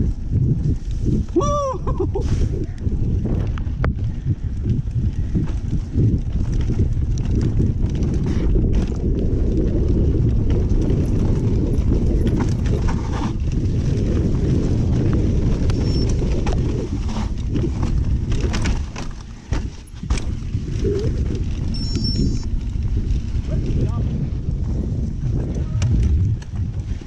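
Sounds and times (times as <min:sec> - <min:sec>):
wind rumble on microphone: 0:00.0 - 0:27.0
bike rattling over rocks: 0:02.8 - 0:27.0.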